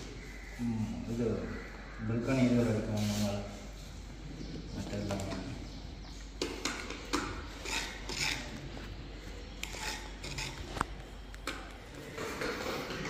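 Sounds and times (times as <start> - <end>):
stick scraping grout paste: 7.4 - 8.8, 9.6 - 10.9.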